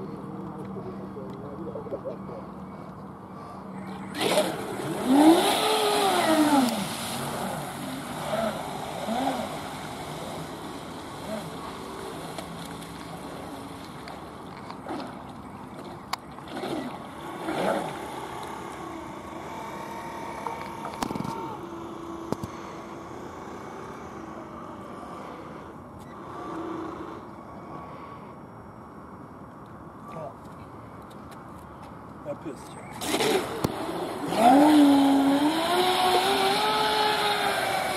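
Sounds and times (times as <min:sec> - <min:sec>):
model boat motor whining: 0:04.0 - 0:13.4, 0:14.8 - 0:27.6, 0:33.0 - 0:37.9.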